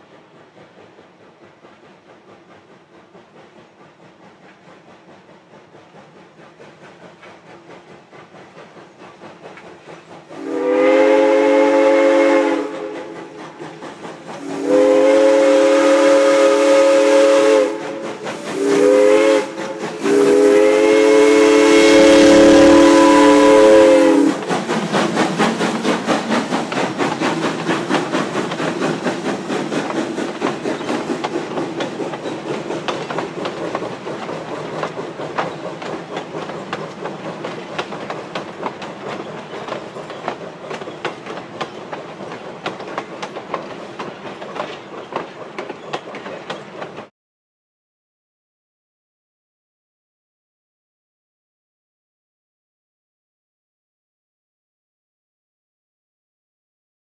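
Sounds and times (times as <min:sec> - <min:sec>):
locomotive passing: 0:00.0 - 0:47.1
steam whistle blowing: 0:10.4 - 0:13.3, 0:14.4 - 0:24.4
wheels clicking over rail joints: 0:24.4 - 0:47.1.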